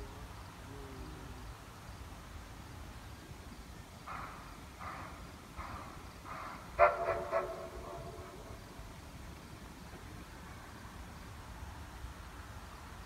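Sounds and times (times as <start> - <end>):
steam locomotive chuffing: 3.8 - 10.9.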